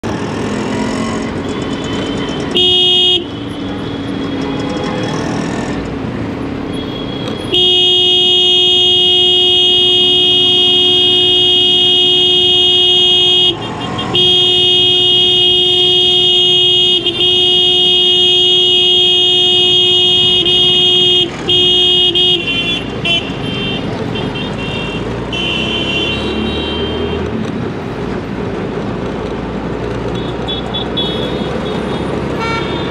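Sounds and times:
traffic noise: 0:00.0 - 0:32.9
vehicle horn honking: 0:01.9 - 0:03.6, 0:06.7 - 0:27.2, 0:30.2 - 0:32.9.

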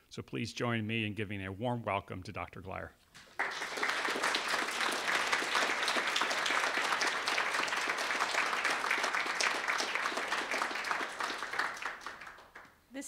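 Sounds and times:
audience applauding: 0:03.3 - 0:12.7.

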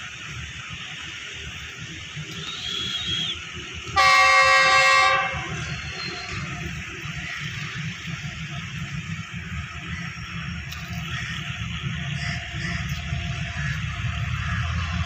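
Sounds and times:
locomotive horn blast: 0:02.4 - 0:06.5.

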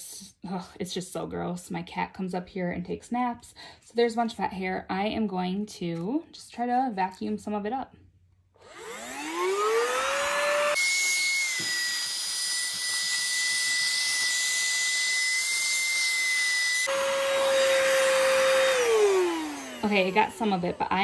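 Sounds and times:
handheld vacuum motor whine: 0:08.6 - 0:21.0.

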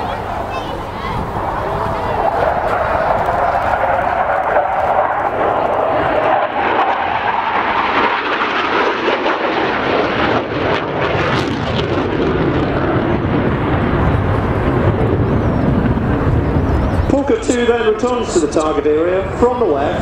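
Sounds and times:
jet engines rushing: 0:00.0 - 0:20.0.

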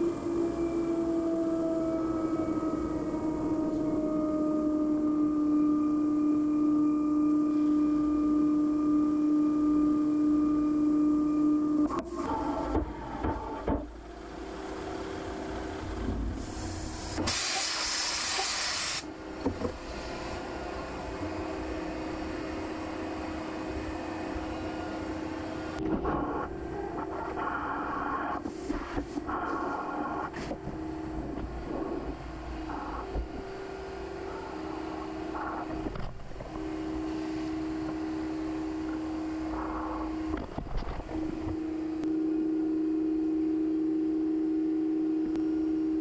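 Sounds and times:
lathe spindle whine: 0:00.0 - 0:17.3, 0:19.0 - 0:42.8
quiet machine hum: 0:00.0 - 0:46.0.

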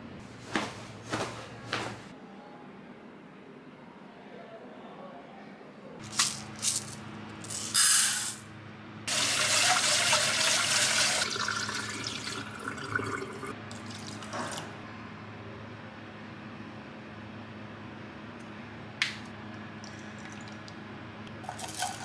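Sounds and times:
tap water running into pot: 0:09.1 - 0:14.6, 0:21.5 - 0:22.0.

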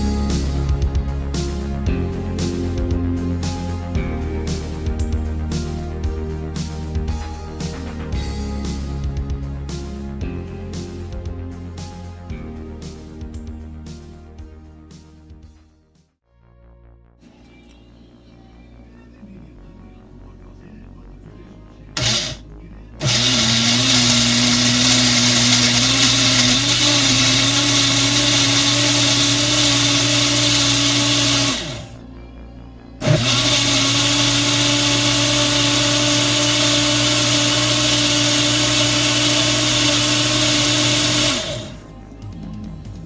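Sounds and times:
blender motor blending: 0:22.0 - 0:22.4, 0:23.0 - 0:32.0, 0:33.0 - 0:41.8.

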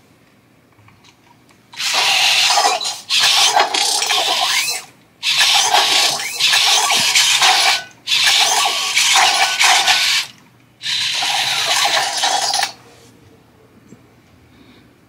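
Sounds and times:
robot servo motors whirring: 0:01.8 - 0:12.8.

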